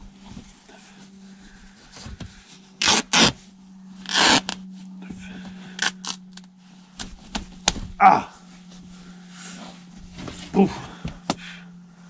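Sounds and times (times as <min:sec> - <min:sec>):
fabric seat cover scraping rustles: 0:06.7 - 0:10.6.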